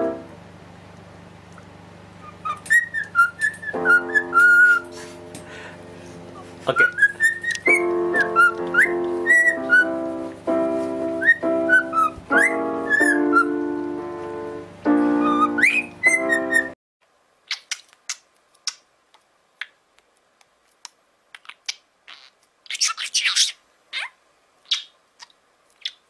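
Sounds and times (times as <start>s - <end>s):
keyboard playing held chords: 0.0s - 0.5s, 3.6s - 6.9s, 7.6s - 16.8s
cockatiel whistling a tune: 2.2s - 4.9s, 6.8s - 10.0s, 11.2s - 13.6s, 15.2s - 16.8s.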